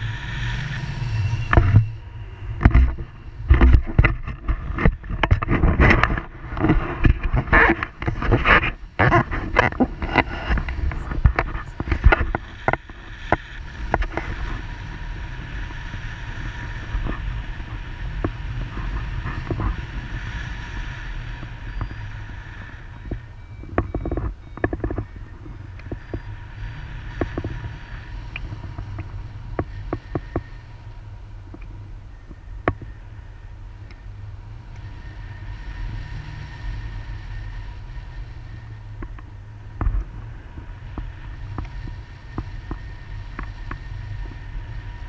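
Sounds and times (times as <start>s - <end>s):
wind buffeting microphone: 0.0s - 45.0s.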